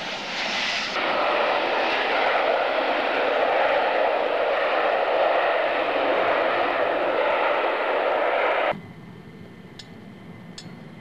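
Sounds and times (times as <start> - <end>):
jet engines roaring: 0.0 - 11.0.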